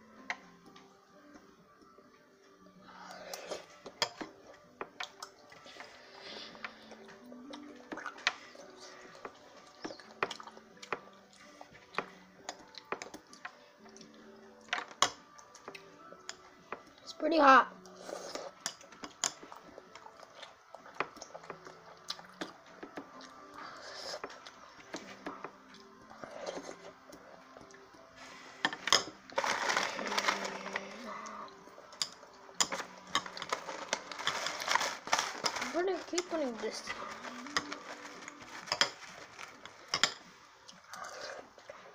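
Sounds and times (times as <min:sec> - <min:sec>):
chewing: 0:17.8 - 0:27.8, 0:40.6 - 0:41.9
metal spoon clinking bowl: 0:39.9 - 0:40.2.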